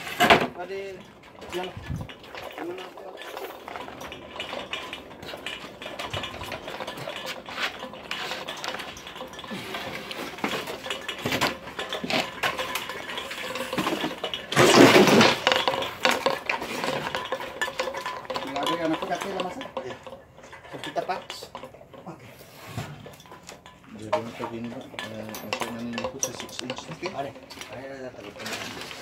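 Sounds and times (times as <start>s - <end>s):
clattering and scraping: 0.0s - 29.0s.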